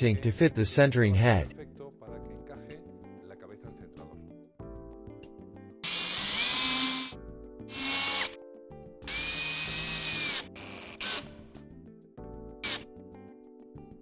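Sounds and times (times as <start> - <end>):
background music: 0.0 - 14.0
cordless drill driving screw: 5.8 - 7.1, 7.7 - 8.4, 9.1 - 11.4, 12.6 - 12.8.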